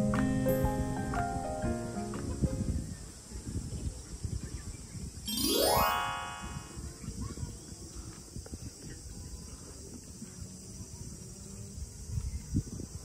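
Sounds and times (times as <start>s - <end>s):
wind rumble on microphone: 2.2s - 5.2s, 6.6s - 13.0s
rising chime jingle: 5.3s - 6.8s
insect chorus: 7.0s - 13.0s.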